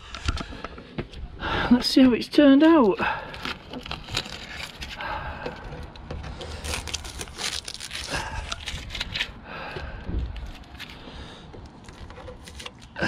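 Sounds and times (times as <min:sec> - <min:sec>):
masking tape being peeled: 0:03.2 - 0:05.0, 0:06.2 - 0:09.4, 0:11.8 - 0:13.0.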